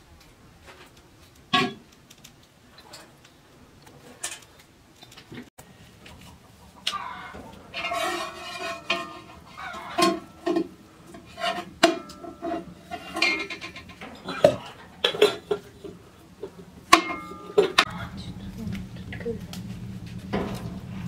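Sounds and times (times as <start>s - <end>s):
steel kitchenware clinking: 7.7s - 18.3s.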